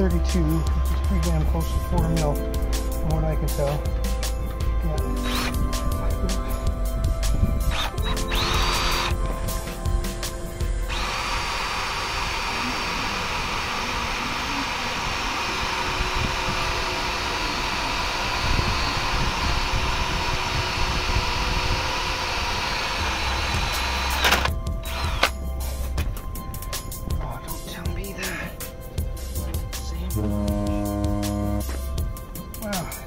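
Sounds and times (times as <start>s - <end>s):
cordless drill whining: 4.4s - 26.0s.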